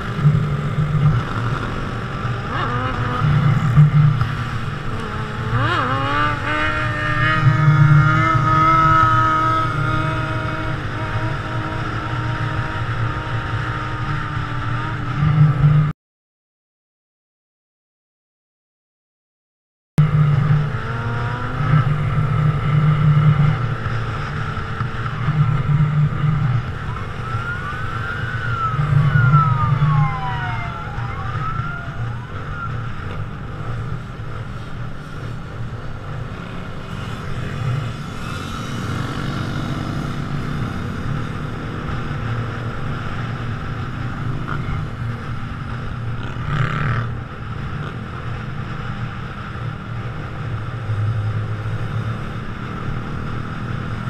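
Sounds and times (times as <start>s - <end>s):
police siren wailing: 25.1s - 33.3s.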